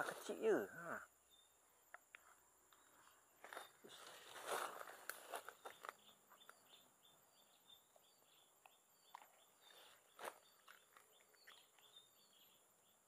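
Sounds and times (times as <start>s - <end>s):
leaves rustling: 0.0s - 0.8s, 3.0s - 6.1s.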